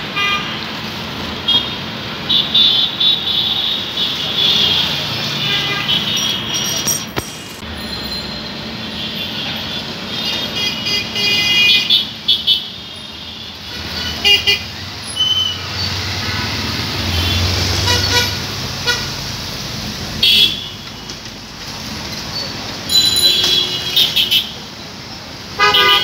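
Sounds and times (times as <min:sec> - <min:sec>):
traffic engine rumble: 0:00.0 - 0:26.0
vehicle horns honking: 0:01.5 - 0:07.1, 0:08.7 - 0:19.1, 0:20.2 - 0:20.9, 0:22.9 - 0:24.6, 0:25.6 - 0:26.0.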